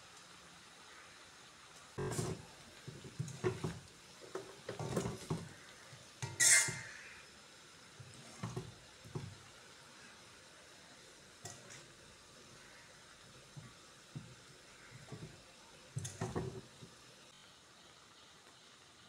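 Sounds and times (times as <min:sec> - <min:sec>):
spatula scraping a pan: 0:02.0 - 0:07.2, 0:08.0 - 0:09.4.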